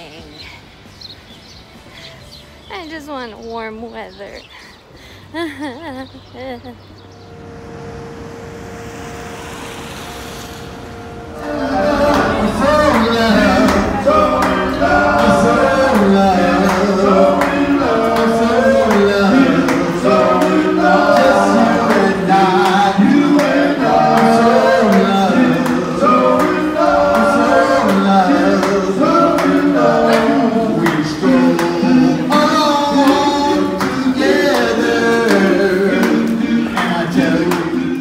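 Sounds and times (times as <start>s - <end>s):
male vocal group singing: 11.2s - 38.0s.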